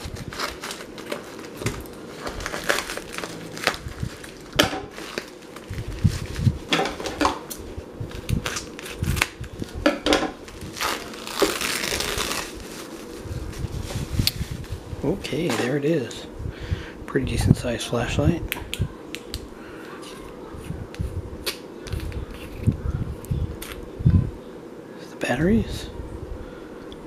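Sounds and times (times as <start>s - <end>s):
plastic packaging crinkling: 0.0s - 7.3s, 8.1s - 9.8s, 10.4s - 14.8s.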